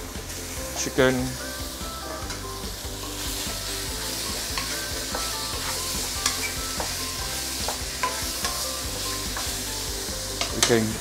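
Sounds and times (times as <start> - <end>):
chicken and mushrooms sizzling in oil: 0.0 - 11.0
wooden spatula knocking and scraping pan: 4.2 - 9.7, 10.3 - 11.0.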